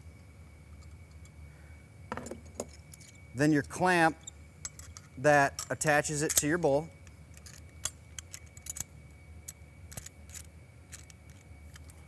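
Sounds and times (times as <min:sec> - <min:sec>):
metal parts clicking and clinking: 0:02.1 - 0:08.9, 0:09.5 - 0:12.0.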